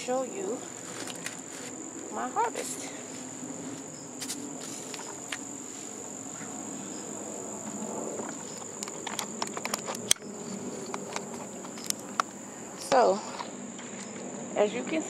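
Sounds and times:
crickets chirping: 0:00.0 - 0:15.0
sharp clicks and knocks: 0:08.2 - 0:12.3.

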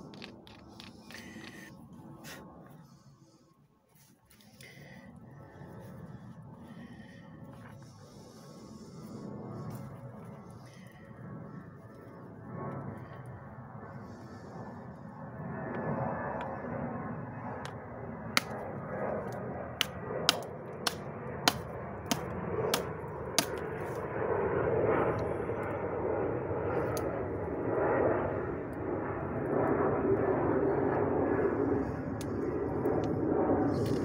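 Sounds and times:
scraping flint edge: 0:00.0 - 0:02.4.

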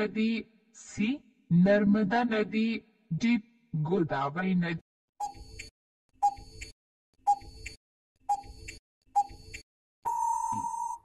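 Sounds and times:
clock-like ticks: 0:05.2 - 0:09.6
steady beep: 0:08.3 - 0:11.0.

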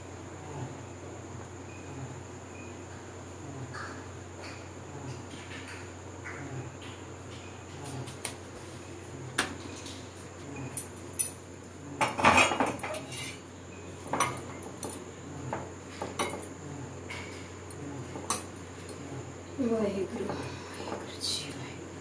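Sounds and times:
metal tongs clattering on iron pan: 0:12.0 - 0:13.2.

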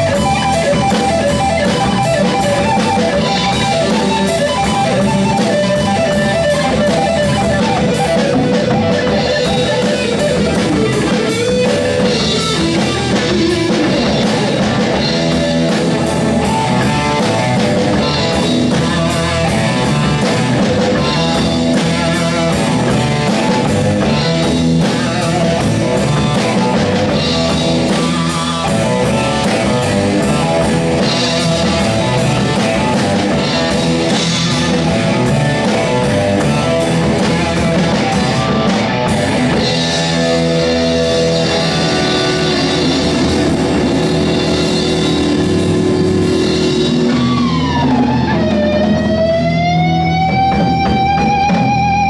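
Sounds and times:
drums: 0:00.0 - 0:52.0
electric guitar: 0:00.0 - 0:52.0.

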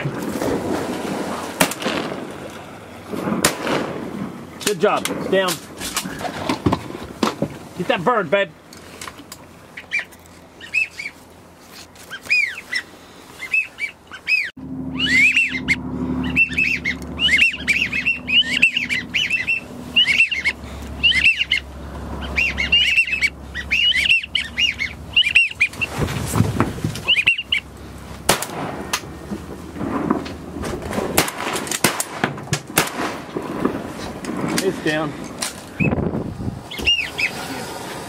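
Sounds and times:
geese honking: 0:09.6 - 0:11.2, 0:12.1 - 0:26.1, 0:27.0 - 0:29.2, 0:36.7 - 0:37.5.

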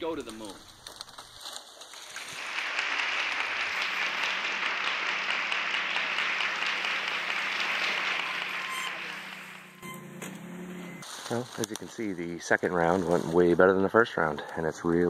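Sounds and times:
audience applauding: 0:02.1 - 0:10.0.

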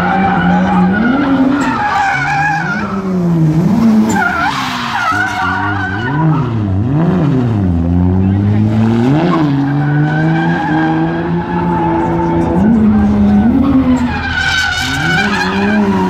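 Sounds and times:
tyres squealing: 0:00.0 - 0:03.4, 0:04.0 - 0:06.6, 0:09.2 - 0:16.0
car engine revving: 0:00.0 - 0:16.0.

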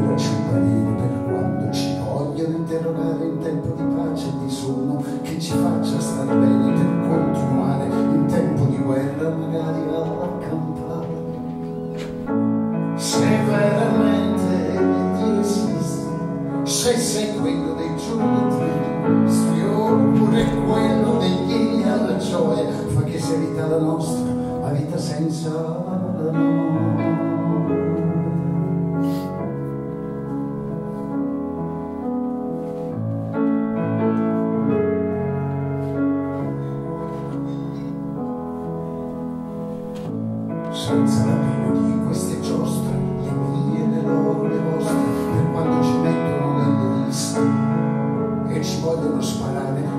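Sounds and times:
man singing: 0:00.0 - 0:12.3, 0:12.9 - 0:29.4, 0:40.7 - 0:49.9.

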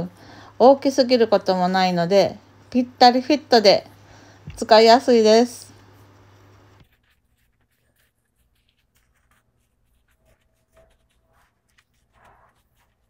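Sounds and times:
wash mitt scrubbing wheel: 0:06.8 - 0:13.0.

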